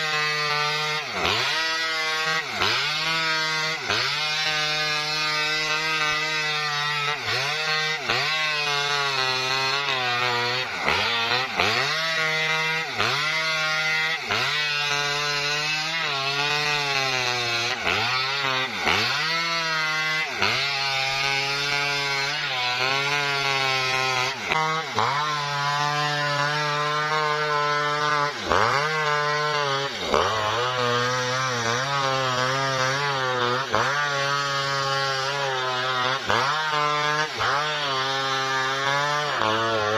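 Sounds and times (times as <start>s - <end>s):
chainsaw cutting through trunk: 0.0s - 39.9s.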